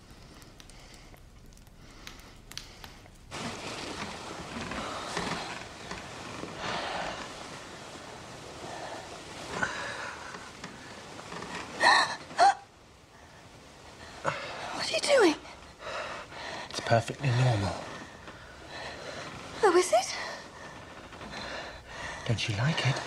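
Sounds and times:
soft breathing: 0:00.0 - 0:23.0
bedclothes rustling: 0:02.7 - 0:23.0.

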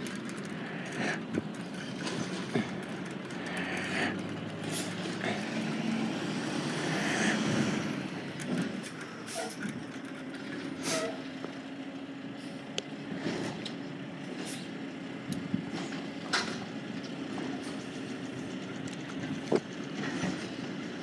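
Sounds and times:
truck engine running: 0:00.0 - 0:21.0
air brakes hissing: 0:10.8 - 0:11.2.

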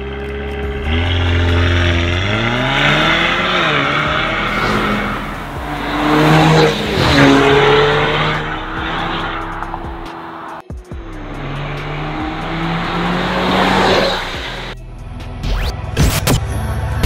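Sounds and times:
car engine accelerating: 0:00.0 - 0:14.8
car passing by: 0:02.8 - 0:14.8.

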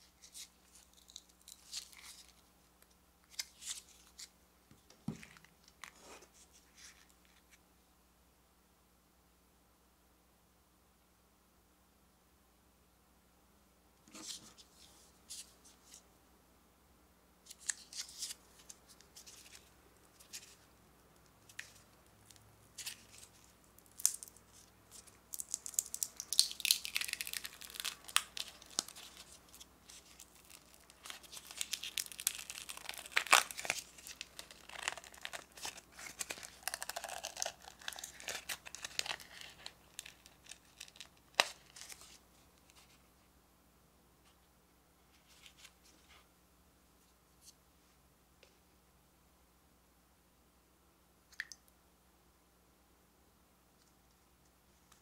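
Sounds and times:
plastic film crackling and tearing: 0:25.3 - 0:42.2.

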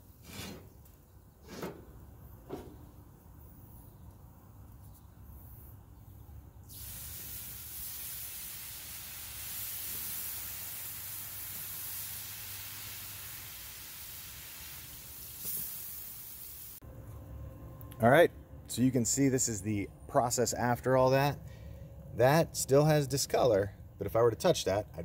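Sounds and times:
water hissing on hot griddle: 0:06.7 - 0:16.8.

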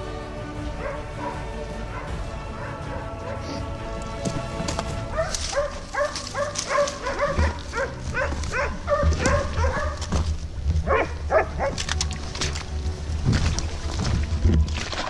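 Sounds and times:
dog yelping barks: 0:05.2 - 0:10.1, 0:10.8 - 0:11.8.

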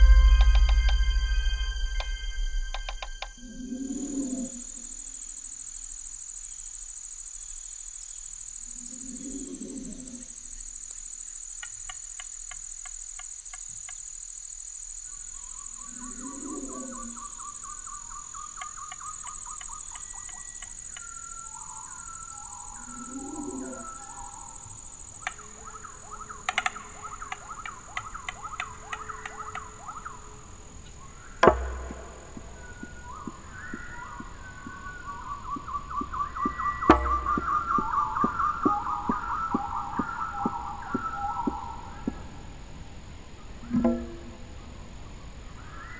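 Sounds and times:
sharp thump: 0:00.0 - 0:03.1, 0:31.4 - 0:32.7, 0:36.9 - 0:37.8
low calls: 0:00.0 - 0:07.0, 0:08.2 - 0:13.9, 0:15.0 - 0:45.9
insects buzzing drone: 0:00.0 - 0:45.9
fast ticking and chirping: 0:04.7 - 0:30.5.

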